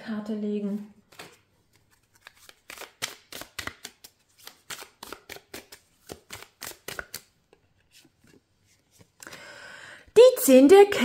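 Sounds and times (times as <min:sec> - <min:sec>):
cards being shuffled by hand: 0:01.1 - 0:09.3.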